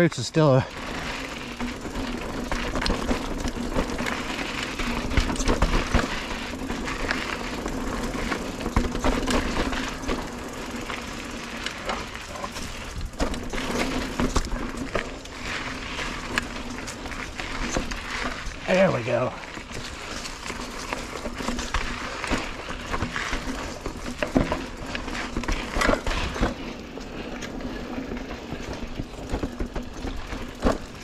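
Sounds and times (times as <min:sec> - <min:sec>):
bike rattling over bumps: 0:00.0 - 0:31.0
bike tyre and wind noise: 0:00.0 - 0:31.0.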